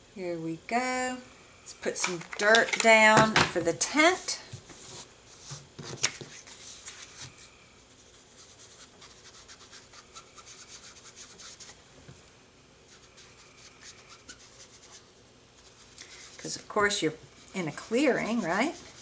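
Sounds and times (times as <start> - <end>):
sponge dabbing on card: 8.0 - 11.8, 12.9 - 16.6, 17.5 - 19.0.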